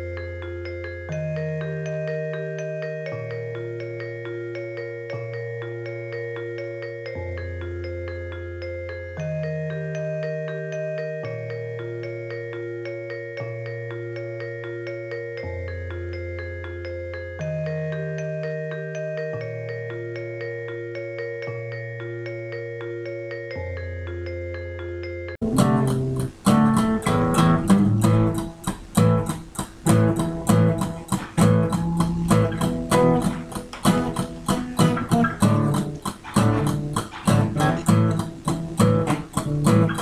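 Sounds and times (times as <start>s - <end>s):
electronic keyboard played slowly: 0.0s - 40.0s
recorded music with strummed guitar: 25.4s - 40.0s.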